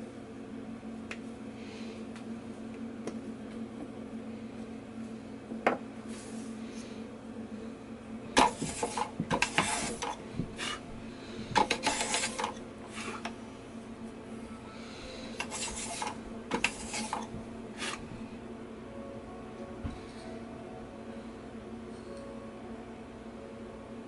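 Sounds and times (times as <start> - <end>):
steady low hum: 0.0 - 24.0
wooden sticks clicking and rubbing: 11.6 - 12.6, 15.4 - 17.2.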